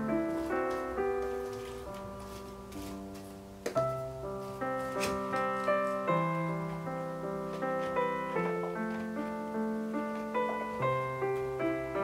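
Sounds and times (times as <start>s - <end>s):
soft piano music: 0.0s - 12.0s.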